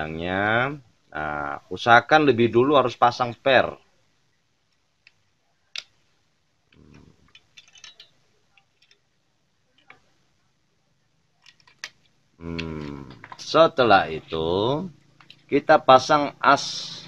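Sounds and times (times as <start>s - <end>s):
man speaking: 0.0s - 3.8s, 12.4s - 17.0s.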